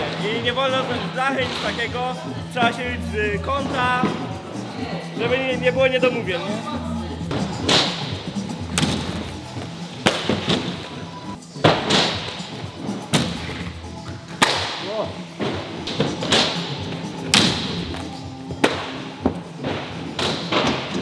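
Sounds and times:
background music: 0:00.0 - 0:21.0
inline skates landing thuds: 0:08.7 - 0:11.0.

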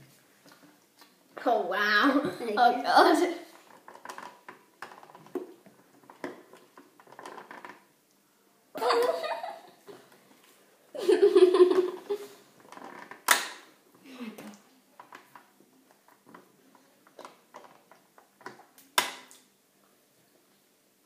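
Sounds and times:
child laughing: 0:08.8 - 0:09.8, 0:11.0 - 0:12.4.

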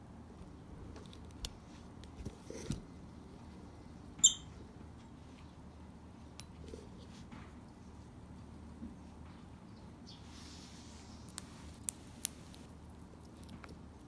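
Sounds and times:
lovebird chirp: 0:04.2 - 0:04.6.

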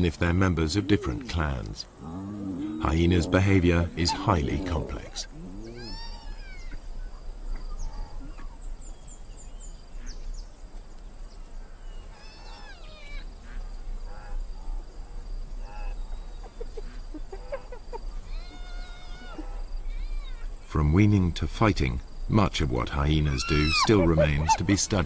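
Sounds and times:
faint insect tone: 0:00.0 - 0:25.0
hyenas calling: 0:00.6 - 0:06.9, 0:12.1 - 0:14.4, 0:23.2 - 0:25.0.

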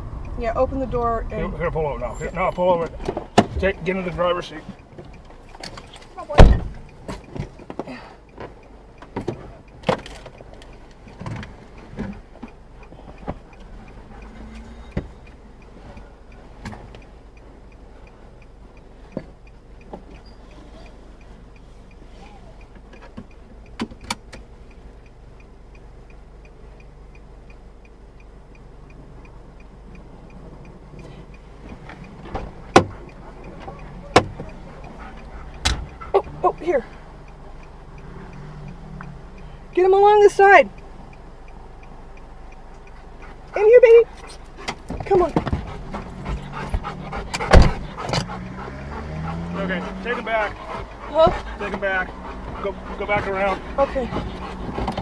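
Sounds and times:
car engine idling: 0:00.0 - 0:55.0
clicks and knocks in car cabin: 0:05.0 - 0:10.4, 0:31.8 - 0:33.0, 0:33.6 - 0:34.6, 0:44.6 - 0:48.3, 0:50.8 - 0:55.0
hazard flasher ticking: 0:22.6 - 0:55.0.

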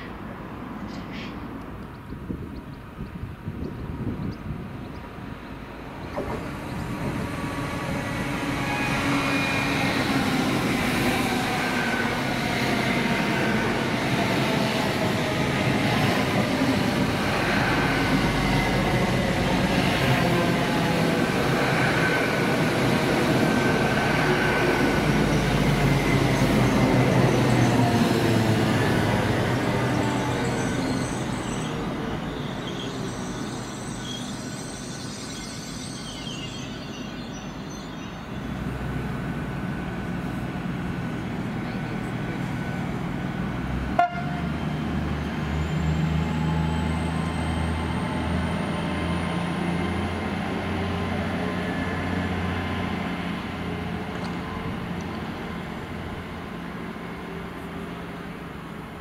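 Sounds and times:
train noise: 0:00.0 - 0:59.0.

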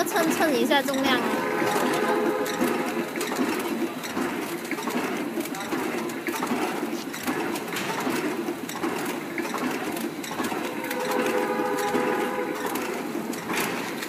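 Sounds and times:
wrapping machine rhythmic clatter: 0:00.0 - 0:14.0
held tone: 0:00.8 - 0:03.8, 0:10.5 - 0:13.3.

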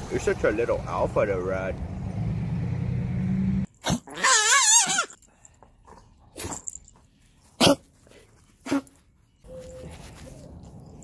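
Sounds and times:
dog sneezing: 0:07.6 - 0:07.8.

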